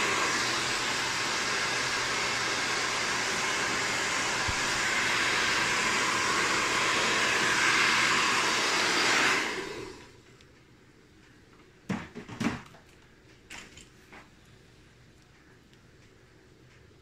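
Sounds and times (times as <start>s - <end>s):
hair dryer blowing: 0.0s - 10.2s.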